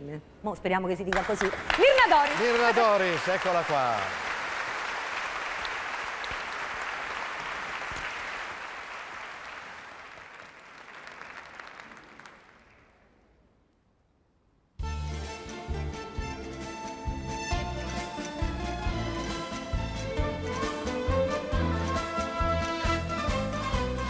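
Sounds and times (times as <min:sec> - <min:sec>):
audience applauding: 0:01.1 - 0:13.1.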